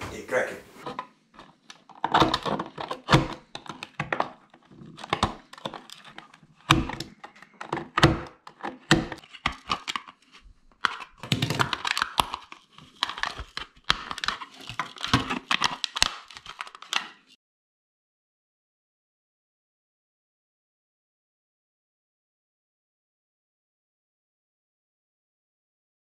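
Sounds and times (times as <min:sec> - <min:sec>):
plastic cracking and snapping: 0:01.4 - 0:17.4.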